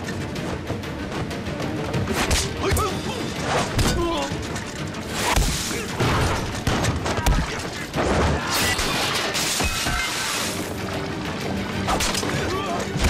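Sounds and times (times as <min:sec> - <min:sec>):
film music score: 0:00.0 - 0:13.0
gunshots: 0:05.1 - 0:10.3.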